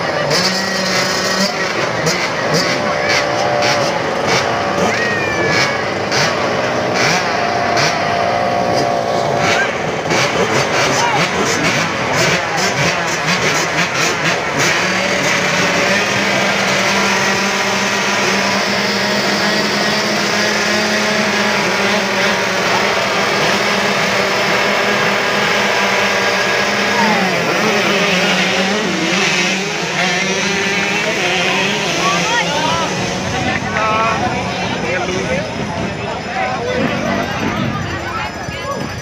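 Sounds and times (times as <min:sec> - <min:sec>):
motocross bikes revving: 0:00.0 - 0:39.0.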